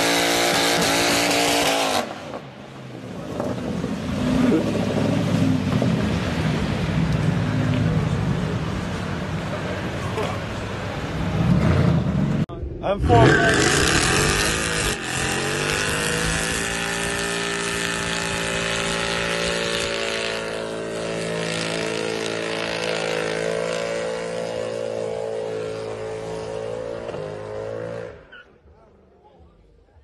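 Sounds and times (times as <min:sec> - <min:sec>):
car engine revving high: 0:00.0 - 0:02.2, 0:11.0 - 0:28.3.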